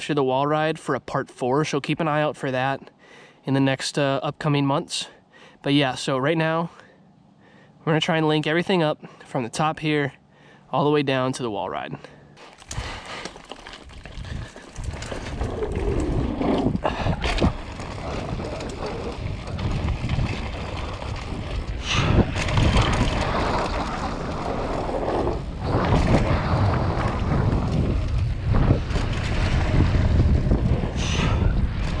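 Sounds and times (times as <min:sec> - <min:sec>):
bike tyres rolling on dirt: 0:12.4 - 0:32.0
wind rushing over microphone: 0:13.9 - 0:32.0.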